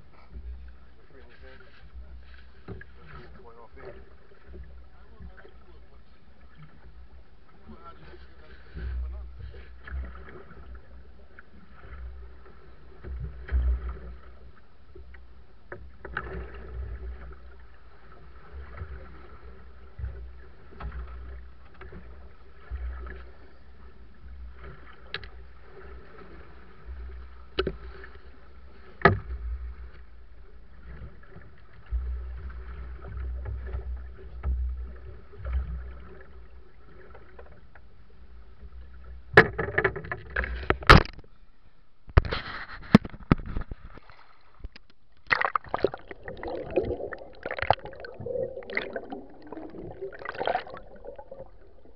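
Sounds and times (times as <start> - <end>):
water washing against hull: 0.0 - 41.2, 42.3 - 51.9
knocks in boat: 28.9 - 30.0, 39.3 - 41.2.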